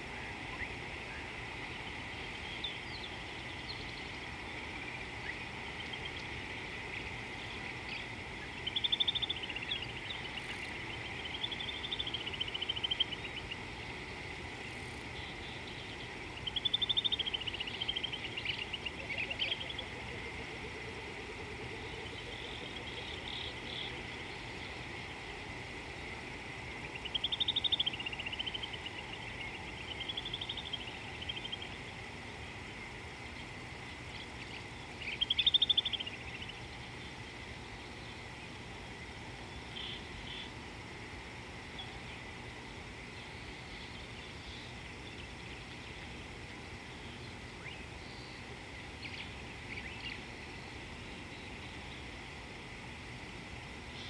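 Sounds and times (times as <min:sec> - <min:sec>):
high insect drone: 0:00.0 - 0:54.0
bird trilled calls: 0:04.8 - 0:24.8, 0:26.8 - 0:31.8, 0:34.4 - 0:36.6.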